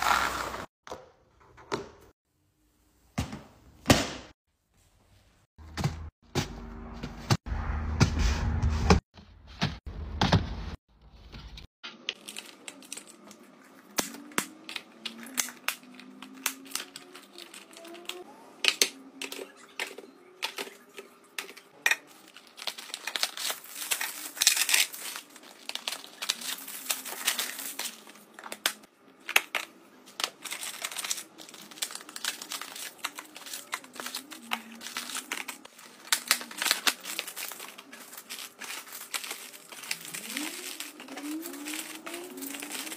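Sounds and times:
packaging crinkling and tearing: 12.1 - 18.3, 22.1 - 42.9.

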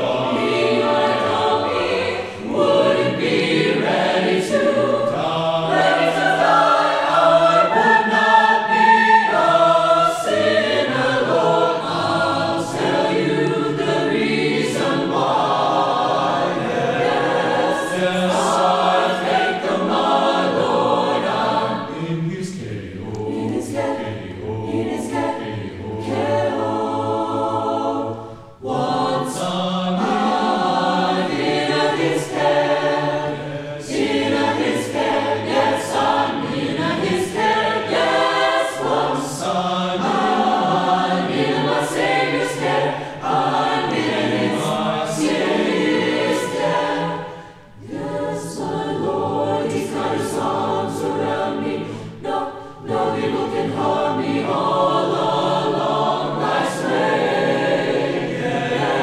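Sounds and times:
choir singing a cappella: 0.0 - 59.0.

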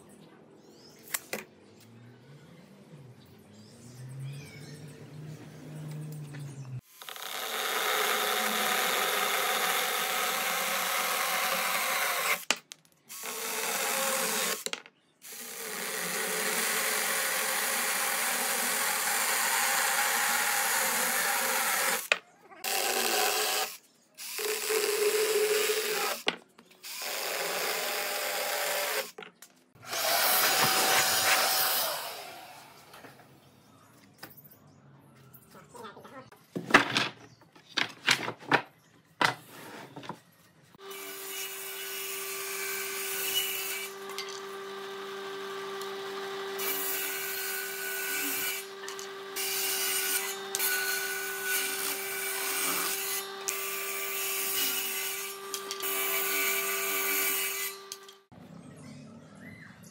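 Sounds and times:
cordless drill boring into wood: 6.9 - 12.5, 13.1 - 29.2, 29.8 - 32.6, 42.2 - 58.1
deep rough power tool: 29.8 - 32.9.

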